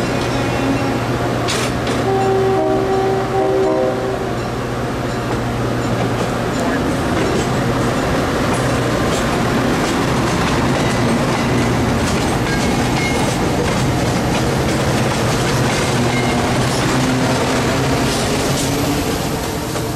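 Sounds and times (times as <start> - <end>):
diesel locomotive drone: 0.0 - 19.9
train wheels clicking over rail joints: 1.4 - 2.1, 5.1 - 19.9.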